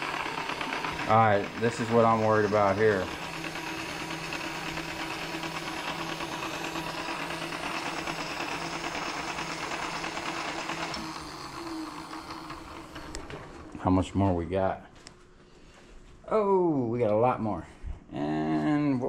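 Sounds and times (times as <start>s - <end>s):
machine motor and gear whir: 0.0s - 13.9s.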